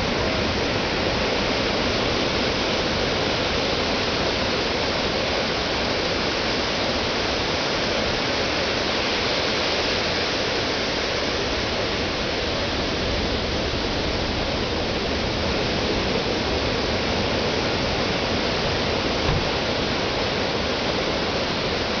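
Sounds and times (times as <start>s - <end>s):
low bump: 19.2s - 19.8s.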